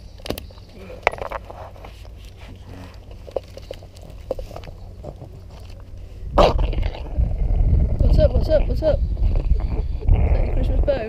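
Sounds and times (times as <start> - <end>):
small crackles and clicks: 2.0 - 6.0.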